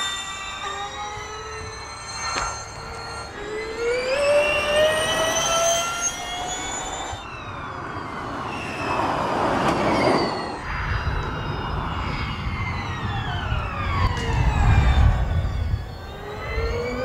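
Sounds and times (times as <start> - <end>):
electric race car whining: 0.0 - 17.0
rush of car passing: 7.3 - 15.8.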